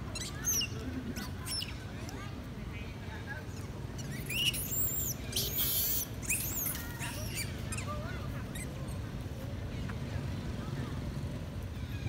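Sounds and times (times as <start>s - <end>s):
monkeys squealing and screeching: 0.1s - 1.7s, 4.0s - 9.0s.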